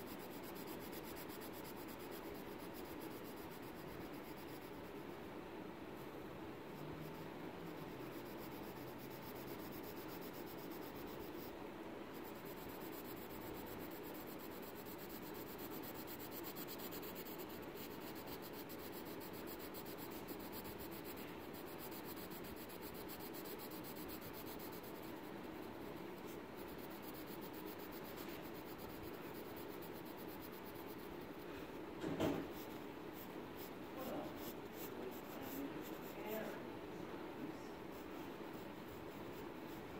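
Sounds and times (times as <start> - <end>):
pencil scratching on paper: 0.0 - 4.9, 6.8 - 11.5, 12.2 - 31.5, 32.2 - 36.6, 37.8 - 39.9
short loud knock: 32.0 - 32.5.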